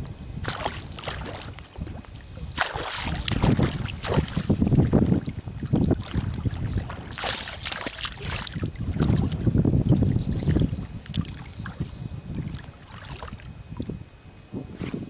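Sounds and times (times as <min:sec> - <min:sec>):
wind on microphone: 0:00.0 - 0:15.0
fish thrashing and splashing: 0:00.4 - 0:13.5.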